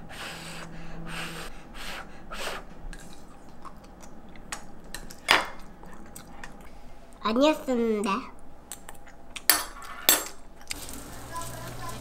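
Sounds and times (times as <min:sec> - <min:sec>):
child blowing on food: 0:00.0 - 0:02.7
child chewing: 0:02.6 - 0:06.9.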